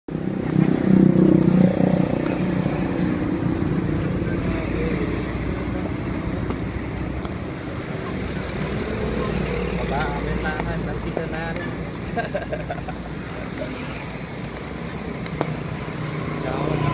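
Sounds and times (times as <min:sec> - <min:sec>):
low engine rumble: 0:00.1 - 0:16.9.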